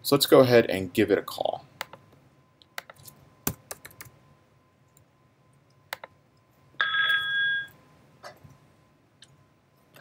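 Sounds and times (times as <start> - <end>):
desk phone electronic ring: 6.8 - 7.8.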